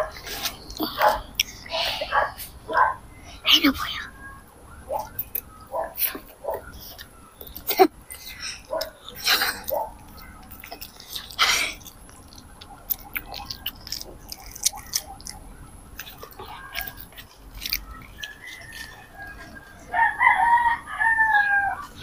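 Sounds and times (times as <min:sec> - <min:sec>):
children chewing food: 0:00.0 - 0:22.0
mouth clicks and smacks: 0:00.4 - 0:01.6, 0:05.0 - 0:19.0.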